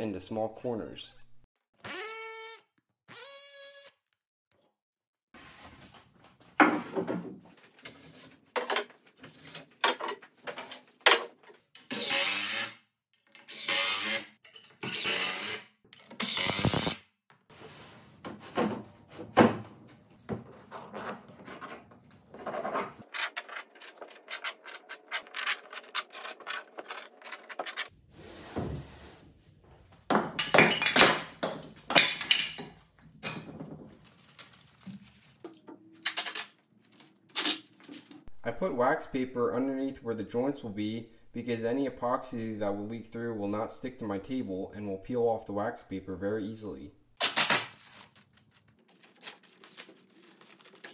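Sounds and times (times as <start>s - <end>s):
lumber sliding on worktable: 28.1s - 29.5s.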